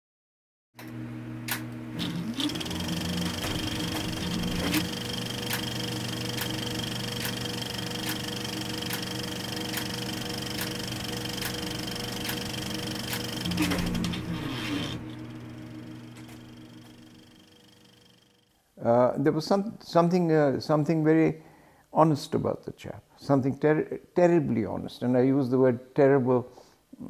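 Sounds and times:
mechanical hum: 0.8 - 19.8
sharp repeating click: 2.9 - 13.8.

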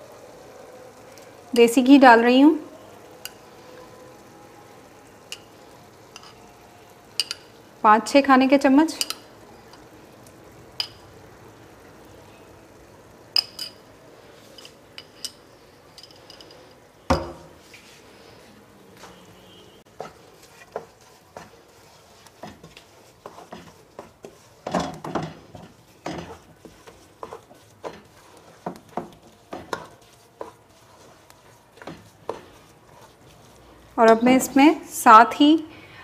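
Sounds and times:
metal spoon clinking on glass: 13.4 - 13.8, 14.6 - 16.6
spatula scraping in pot: 17.6 - 34.5.

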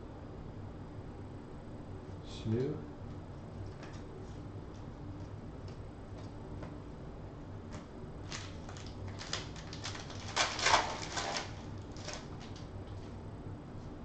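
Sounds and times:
foil wrapper tearing and crinkling: 8.2 - 12.7.

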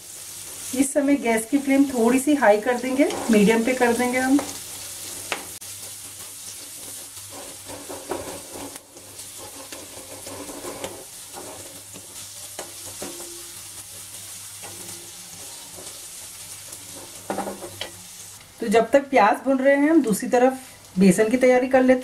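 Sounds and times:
onions sizzling in hot oil: 0.0 - 22.0
spatula scraping a pan: 2.0 - 18.2.

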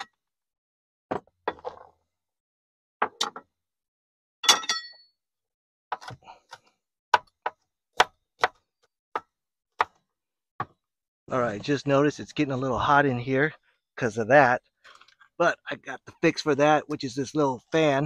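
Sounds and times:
ringing clink: 4.4 - 5.1
knife chopping on wooden board: 5.9 - 10.0.

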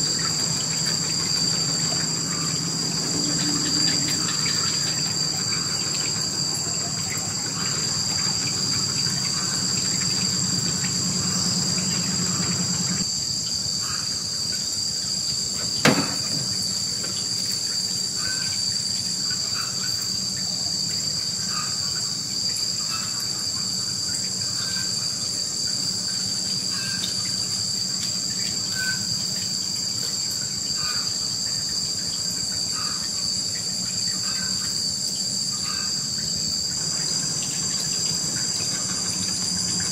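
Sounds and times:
insects droning: 0.0 - 39.9
sharp knock: 15.8 - 16.5.

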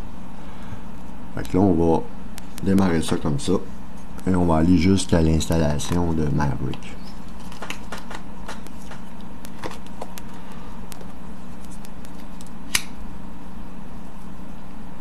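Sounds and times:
computer humming: 0.0 - 15.0
sharp click: 11.8 - 13.0.

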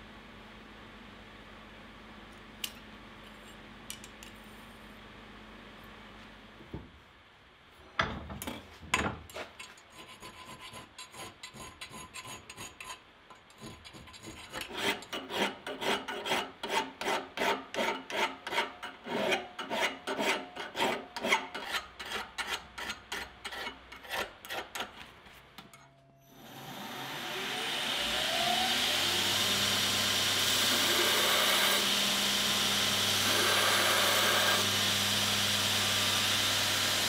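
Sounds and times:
hand file rasping on steel: 9.6 - 24.9.

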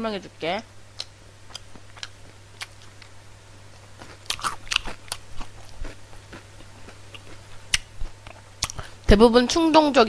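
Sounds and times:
crunchy chewing of fried food: 1.0 - 9.0.

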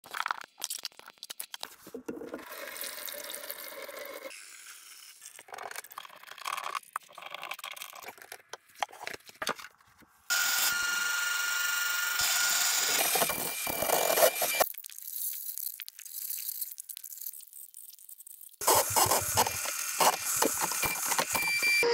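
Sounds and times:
plastic parts clicking and scraping: 5.4 - 9.8, 18.6 - 21.8
electric motor whining: 10.3 - 14.6.

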